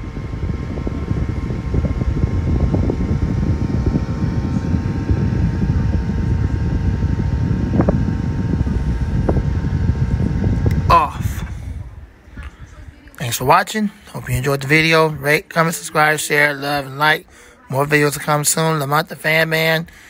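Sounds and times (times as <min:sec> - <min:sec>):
low rumble of moving air: 0:00.0 - 0:13.5
electric fan whirring: 0:00.0 - 0:20.0.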